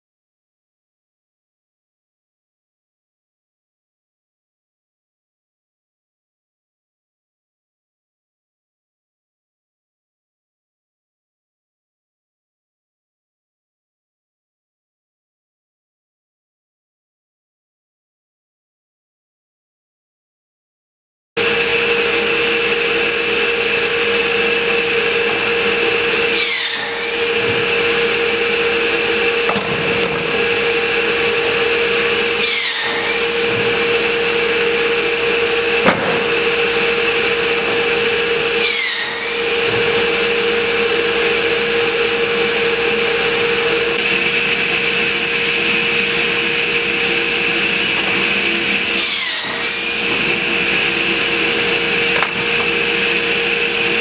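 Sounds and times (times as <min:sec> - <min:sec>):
saw whining and cutting wood: 0:21.4 - 0:54.0.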